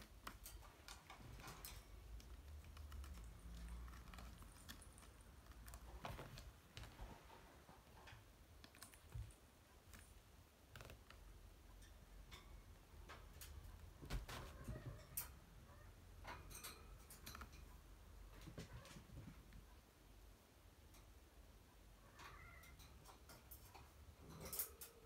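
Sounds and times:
kittens' claws scratching: 0:00.0 - 0:07.8.

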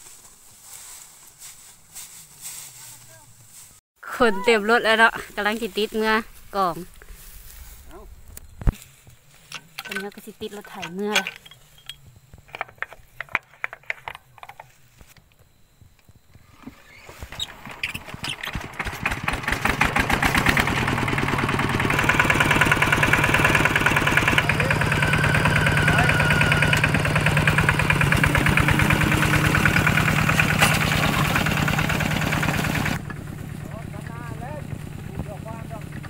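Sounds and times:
diesel engine starting up: 0:16.6 - 0:36.0.

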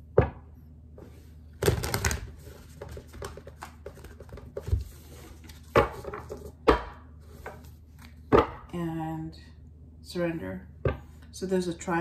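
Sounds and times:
cards being shuffled: 0:01.6 - 0:06.5.

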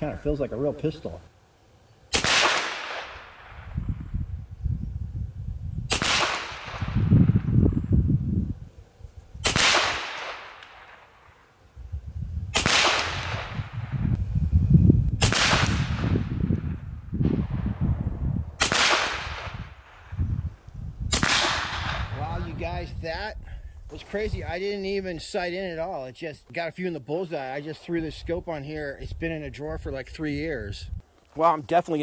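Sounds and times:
air pistol shots: 0:02.1 - 0:03.8, 0:05.9 - 0:07.1, 0:09.4 - 0:11.3, 0:12.5 - 0:13.7, 0:15.2 - 0:16.3, 0:18.6 - 0:19.8, 0:21.1 - 0:22.2.

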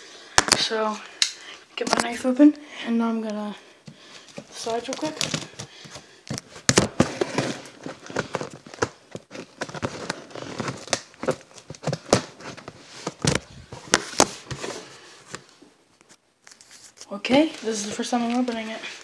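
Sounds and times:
tape and cardboard ripping: 0:04.5 - 0:14.8.

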